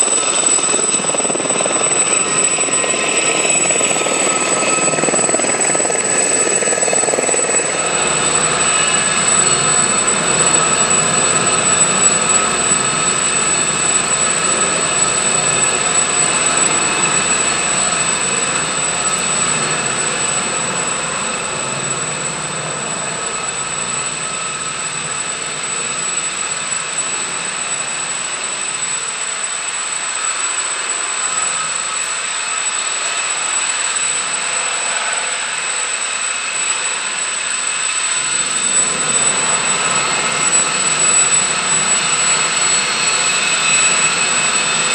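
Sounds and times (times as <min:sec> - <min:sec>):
helicopter rotor noise: 0:00.0 - 0:44.9
helicopter turbine whine: 0:00.0 - 0:44.9.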